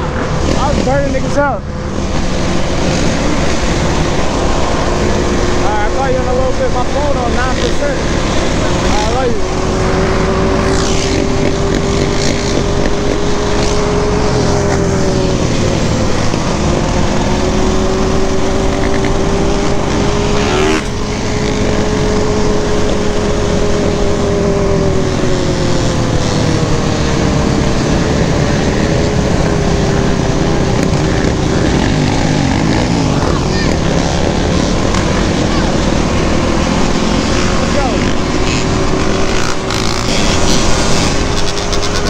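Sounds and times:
quad bike engine running: 0.0 - 42.0.

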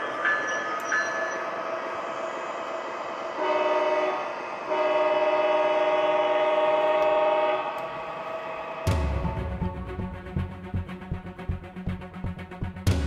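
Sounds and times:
model locomotive horn blasts: 3.4 - 7.8.

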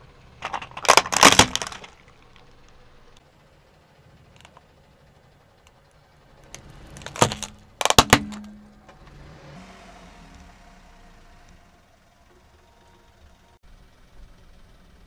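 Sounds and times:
light bulb cracking under tyre: 0.4 - 2.8, 6.5 - 8.6.

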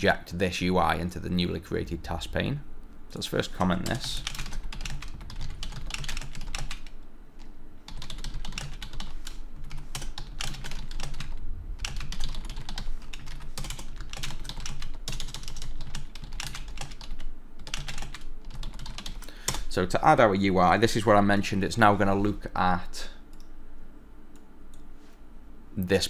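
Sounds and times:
steady low hum: 0.0 - 26.0
computer keyboard typing: 3.8 - 7.0, 7.9 - 19.6.

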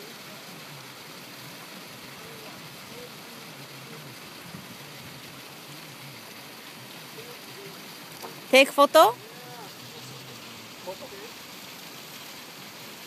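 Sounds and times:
water jet splashing: 0.0 - 13.0.

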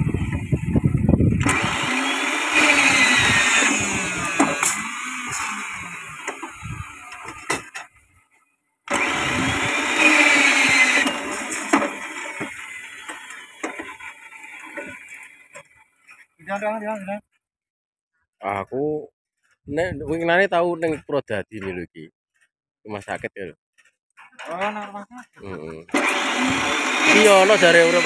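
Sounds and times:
rebar bending machine whining: 0.0 - 7.9, 8.9 - 16.4, 24.3 - 28.0.

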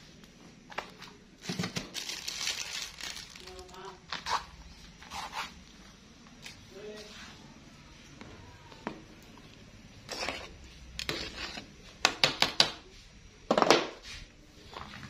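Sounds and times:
utensil scraping a metal pot: 10.0 - 11.7.

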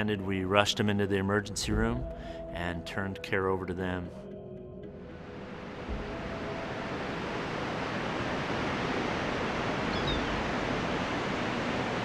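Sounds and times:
ocean surf on a beach: 5.2 - 12.0
faint high chirp: 9.9 - 10.4.

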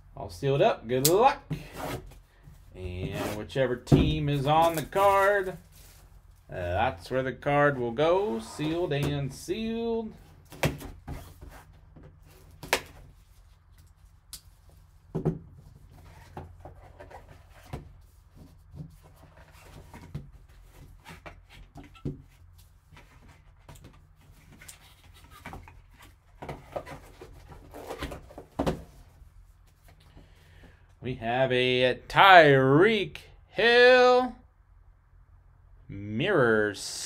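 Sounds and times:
knife cutting cardboard box: 3.0 - 3.4.

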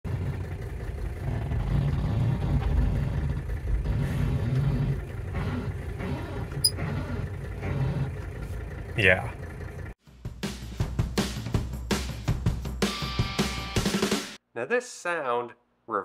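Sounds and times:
car engine running: 0.1 - 10.0.

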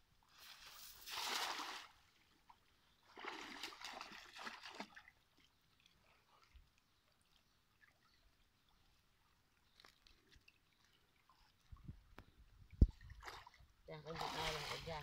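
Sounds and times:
net splashing into water: 0.6 - 2.0, 3.1 - 5.1
choppy splashing in water: 12.8 - 15.0.

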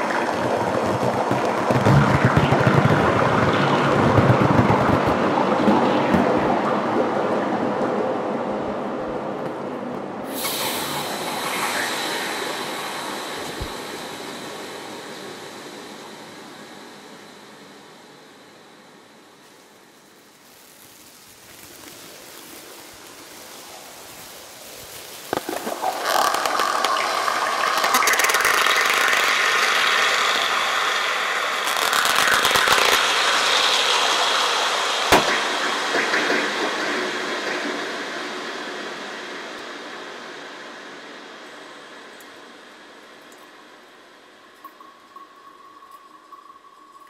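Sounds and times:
plastic bag crackling with echoes: 19.4 - 34.3
sharp snap: 35.1 - 36.2.

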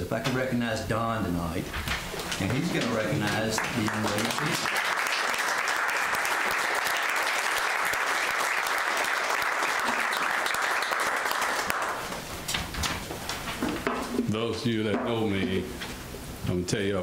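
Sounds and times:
crowd applauding: 2.4 - 12.2.

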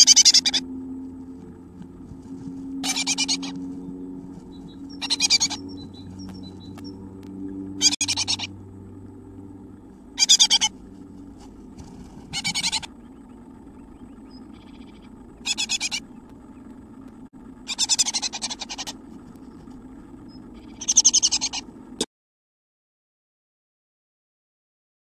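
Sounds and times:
bird rattling calls: 0.0 - 0.6, 2.4 - 8.6, 10.0 - 17.0, 17.6 - 21.8
low electrical hum: 0.0 - 22.1.

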